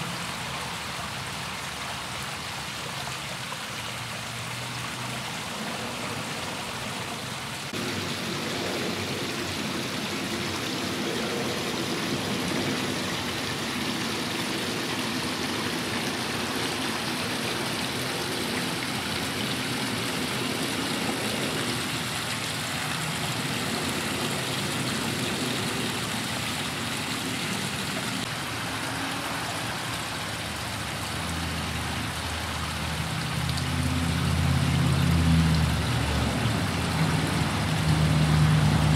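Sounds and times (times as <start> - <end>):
waterfall splashing into pond: 0.0 - 38.9.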